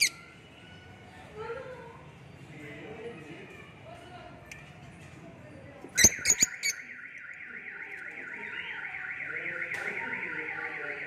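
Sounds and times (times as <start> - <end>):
warbling electronic alarm: 6.0 - 11.0.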